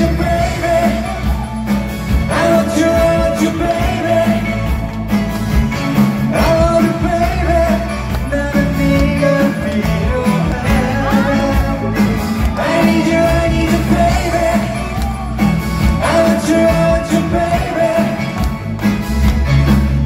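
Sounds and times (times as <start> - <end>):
man singing: 0.0 - 5.2, 6.2 - 18.6
drums: 0.0 - 20.0
electric guitars: 0.0 - 20.0.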